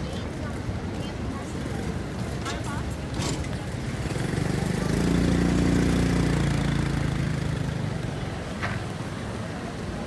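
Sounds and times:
vehicle engine passing by: 3.3s - 8.1s.

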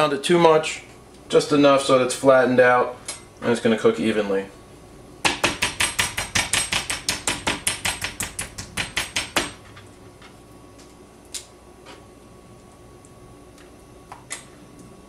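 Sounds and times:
meat mallet pounding chicken: 5.3s - 9.6s.

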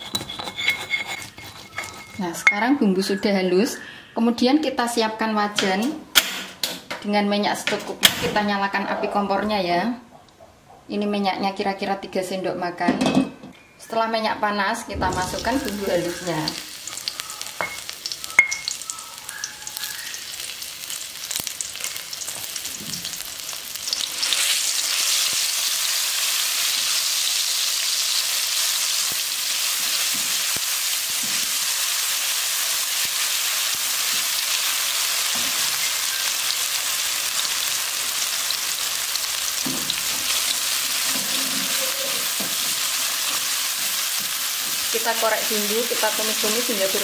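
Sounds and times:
spatula scraping a wok: 0.0s - 2.5s, 40.0s - 44.9s
paste sizzling in hot oil: 15.1s - 47.0s.

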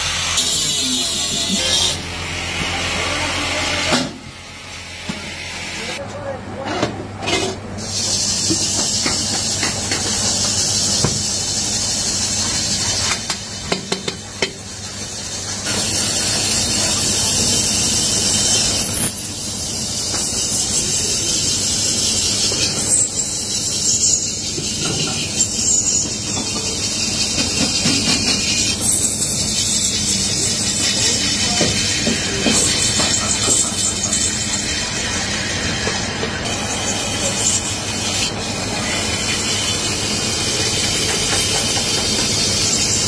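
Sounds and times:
cutting tool scraping spinning metal: 0.0s - 3.9s, 15.5s - 43.0s.

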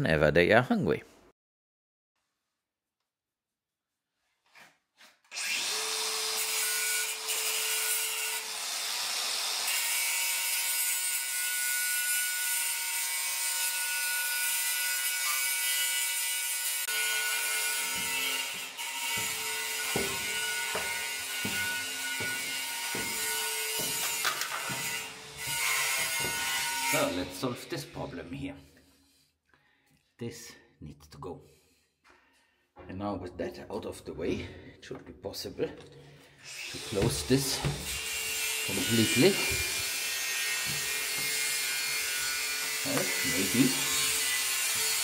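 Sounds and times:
power tool cutting wood: 5.3s - 28.2s, 36.4s - 45.0s
regular knocks: 19.1s - 25.0s.

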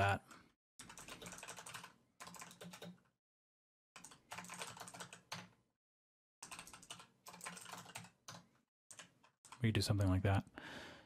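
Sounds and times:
typing on computer keyboard: 0.8s - 3.1s, 4.0s - 5.6s, 6.4s - 9.6s.

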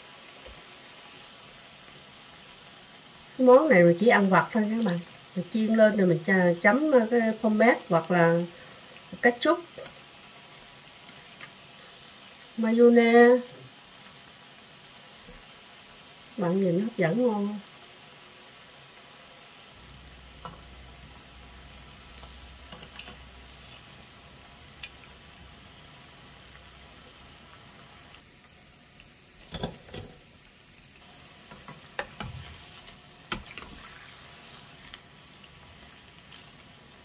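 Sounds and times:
oil sizzling in a pan: 0.0s - 37.0s.

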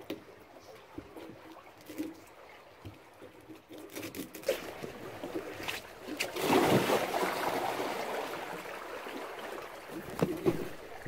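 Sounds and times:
water sloshing: 0.6s - 11.0s
splash of person stepping into water: 5.6s - 8.0s.

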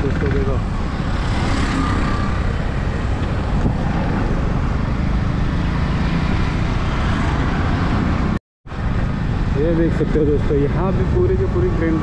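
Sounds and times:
wind on microphone: 0.6s - 9.6s.

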